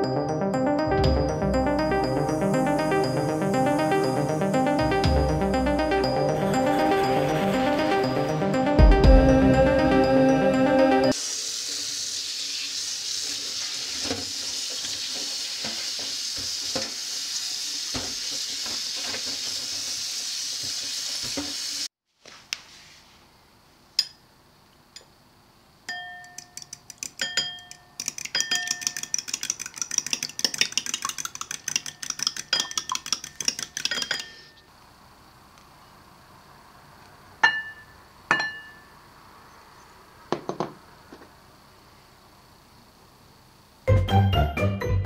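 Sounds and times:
tap water running into colander: 11.2s - 21.9s
fork striking bowl: 25.9s - 34.5s
fork beating eggs: 26.2s - 34.6s.

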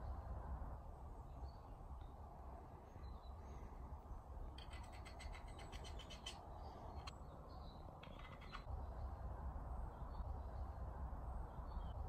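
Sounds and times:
low steady rumble: 0.0s - 12.0s
bird chirps: 4.6s - 8.7s.

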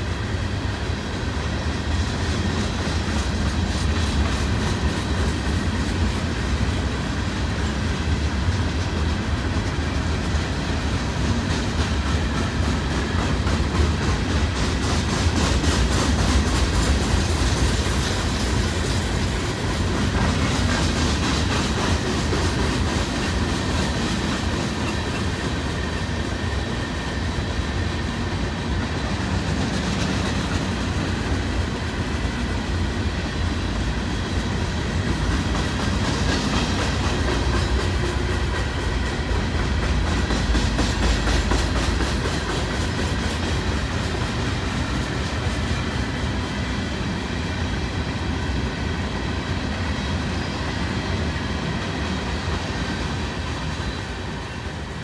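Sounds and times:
clickety-clack of rail joints: 0.0s - 55.0s
train wheels rumbling on rails: 0.0s - 55.0s.

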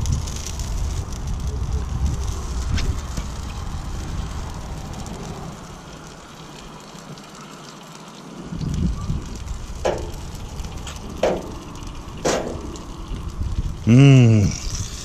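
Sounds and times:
wind rumble on microphone: 0.0s - 7.2s, 8.3s - 15.0s
sauce sizzling on grill: 0.0s - 15.0s.

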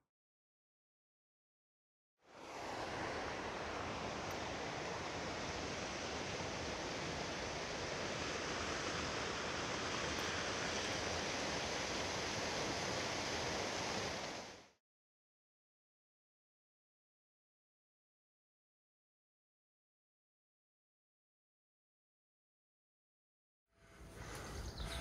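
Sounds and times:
stream rushing over rocks: 2.4s - 14.8s.

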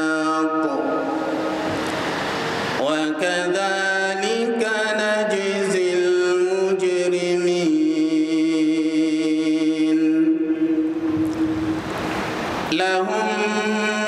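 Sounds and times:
man chanting recitation: 0.0s - 1.5s, 2.8s - 11.0s, 12.7s - 14.0s.

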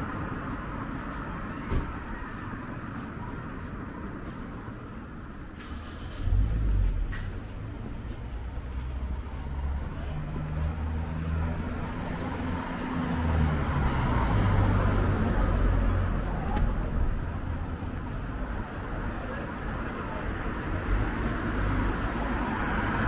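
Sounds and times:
road noise: 0.0s - 23.0s
vehicle engine humming: 0.0s - 23.0s.

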